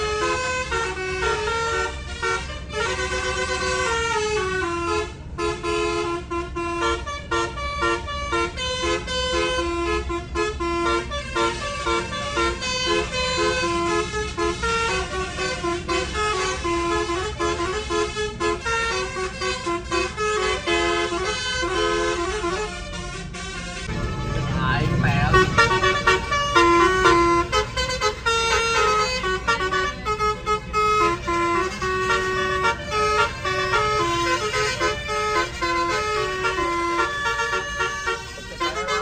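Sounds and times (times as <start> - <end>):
musical air horn playing tune: 0.0 - 39.0
low rumble: 23.8 - 27.1.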